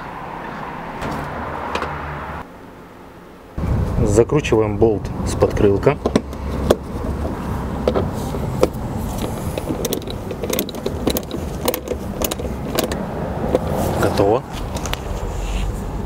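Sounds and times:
hand tool metal clicks: 9.2s - 13.0s.

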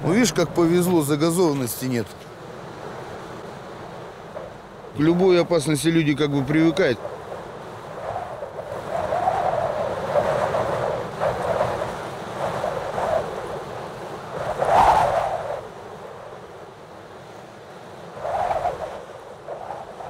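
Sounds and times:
wind blowing in gusts: 0.0s - 20.0s.

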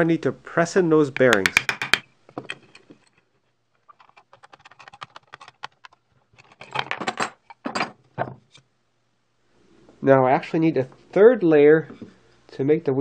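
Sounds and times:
metal clamps clattering: 6.4s - 8.3s.

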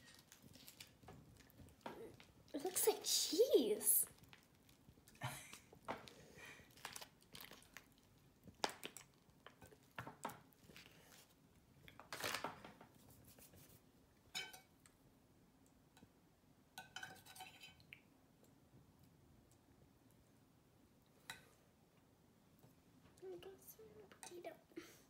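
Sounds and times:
foil pouch crinkling: 0.0s - 1.5s, 6.7s - 7.9s.

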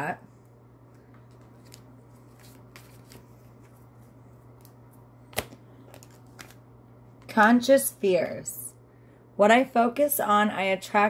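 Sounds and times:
low steady hum: 0.0s - 11.0s
cards rustling: 1.0s - 6.6s.

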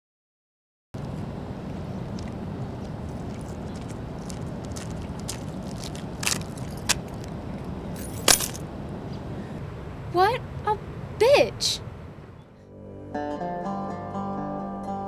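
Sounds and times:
low outdoor background: 1.0s - 15.0s
keys jangling: 5.8s - 7.3s, 8.0s - 8.6s.

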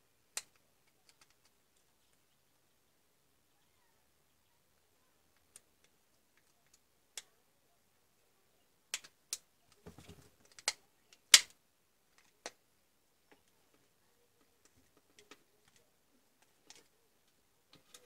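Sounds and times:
plastic clicks and snaps: 0.3s - 2.2s, 5.3s - 7.3s, 8.9s - 9.8s, 10.4s - 12.6s, 14.6s - 18.0s.

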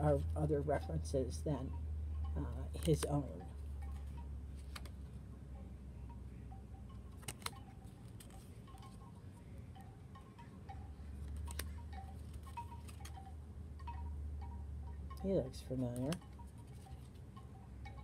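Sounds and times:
cards clicking: 2.8s - 3.2s, 4.6s - 5.0s, 7.2s - 8.5s, 11.2s - 13.2s.

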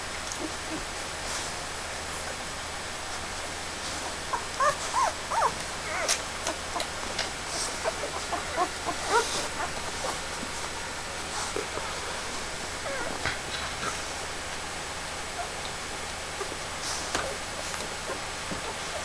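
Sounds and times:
steady background hiss: 0.0s - 19.0s
puppies squeaking and whimpering: 4.2s - 10.7s, 12.7s - 13.2s.

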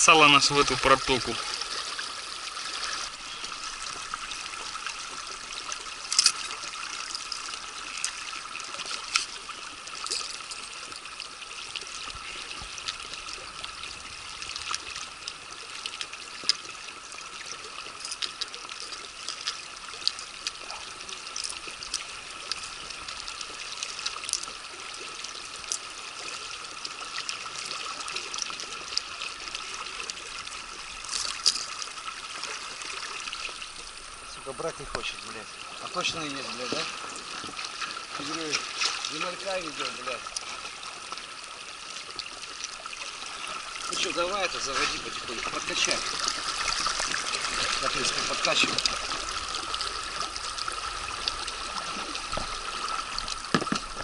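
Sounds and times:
river current trickling: 0.0s - 54.0s.

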